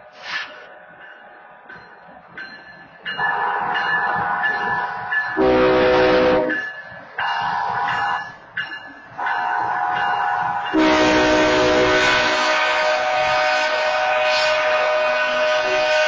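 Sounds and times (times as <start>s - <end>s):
passing train rumble: 0.0s - 16.0s
locomotive horn blowing: 5.4s - 6.6s, 10.7s - 16.0s
wayside horn long blasts: 5.4s - 6.6s, 9.2s - 16.0s.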